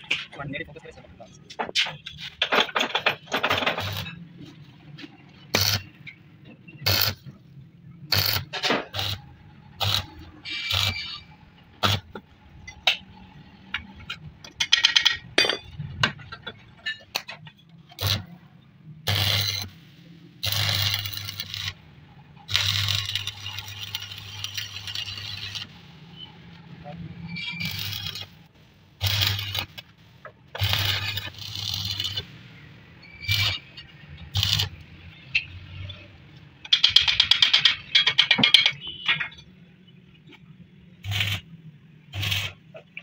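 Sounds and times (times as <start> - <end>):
welding arc crackle: 5.5 - 5.9, 6.8 - 7.2, 8.1 - 12.2, 18.0 - 18.3, 19.1 - 19.8, 20.4 - 21.8, 22.4 - 26.0, 27.5 - 30.0, 30.6 - 32.4, 33.2 - 34.8, 41.0 - 41.5, 42.1 - 42.6.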